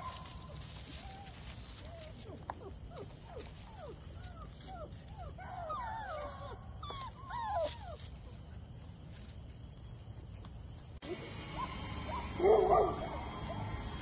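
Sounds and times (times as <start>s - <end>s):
puppies yipping and squealing: 0.0s - 9.3s, 11.0s - 14.0s.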